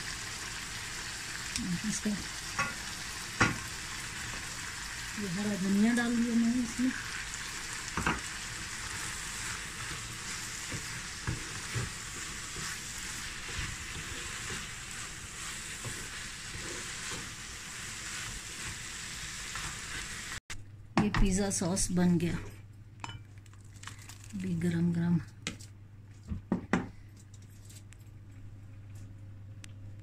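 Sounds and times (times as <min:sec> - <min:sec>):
meat sizzling in a pan: 0:00.0 - 0:20.4
spatula scraping and tapping pan: 0:08.9 - 0:17.4.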